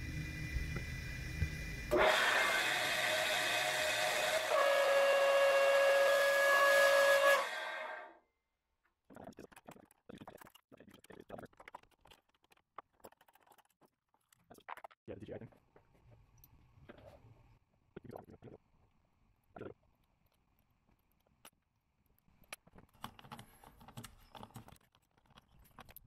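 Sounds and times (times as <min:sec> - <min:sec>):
lathe motor humming: 0:00.7 - 0:08.0
shrill squealing whine: 0:01.9 - 0:08.2.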